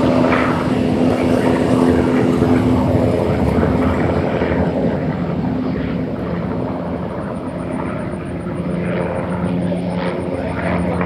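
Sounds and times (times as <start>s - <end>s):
helicopter engine drone: 0.0s - 11.0s
helicopter rotor chop: 0.0s - 11.0s.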